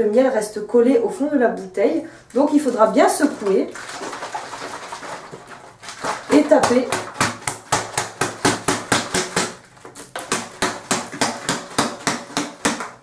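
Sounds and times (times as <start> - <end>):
plastic bottle of liquid shaken: 2.4 - 7.4.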